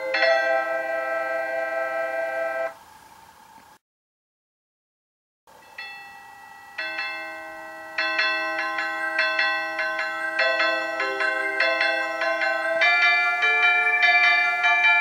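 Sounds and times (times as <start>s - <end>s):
electronic bell chimes: 5.6s - 15.0s.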